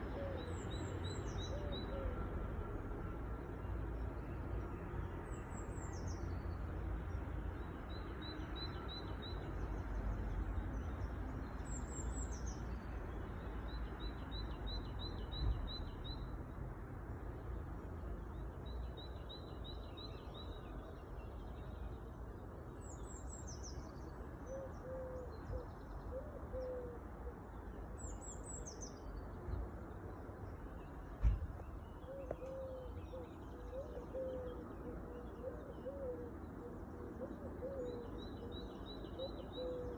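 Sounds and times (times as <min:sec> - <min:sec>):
songbirds chirping and trilling: 0:00.0 - 0:39.9
pigeon cooing: 0:33.6 - 0:36.3.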